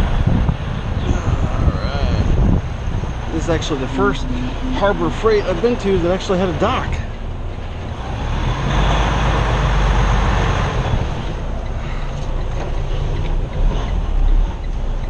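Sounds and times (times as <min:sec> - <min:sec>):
broad rushing noise: 0:00.0 - 0:07.1
truck diesel engine rumbling: 0:00.0 - 0:15.0.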